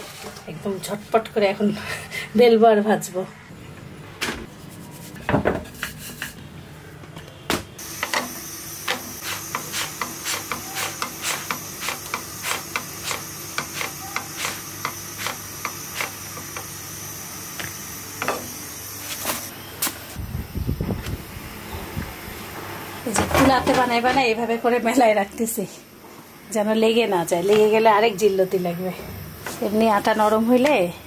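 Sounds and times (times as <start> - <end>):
gas burner hissing: 7.8 - 22.0.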